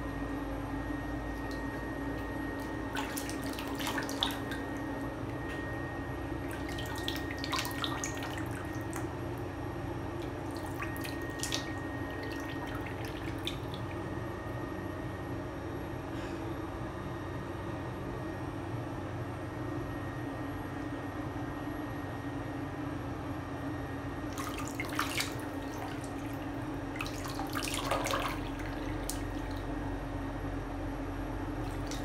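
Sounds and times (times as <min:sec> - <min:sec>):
steady background hum: 0:00.0 - 0:32.0
water dripping in bathtub: 0:01.3 - 0:05.5, 0:06.4 - 0:09.5, 0:10.2 - 0:14.0, 0:24.3 - 0:29.8, 0:31.6 - 0:32.0.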